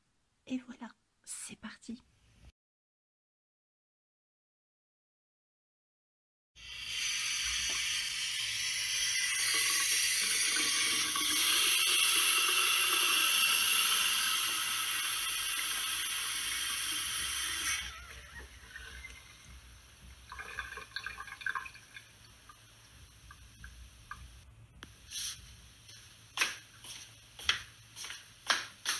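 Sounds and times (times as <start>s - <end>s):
water running from a tap: 6.6s - 24.4s.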